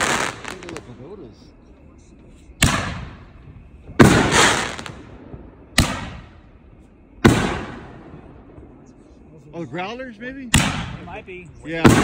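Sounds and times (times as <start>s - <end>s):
fireworks bursting with echo: 0.0s - 1.3s, 2.5s - 9.2s, 10.4s - 12.0s
fireworks crackling: 0.0s - 1.5s, 2.5s - 9.2s.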